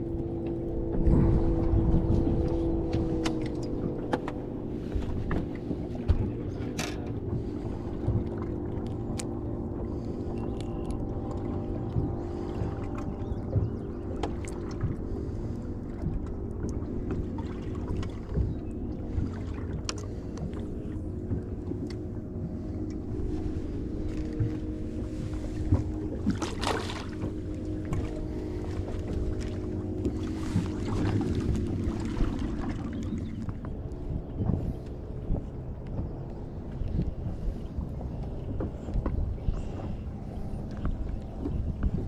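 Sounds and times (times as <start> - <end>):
steady low hum: 0.0 - 42.0
water noise: 0.0 - 42.0
wind: 0.0 - 42.0
fish splashing into water: 26.4 - 27.2.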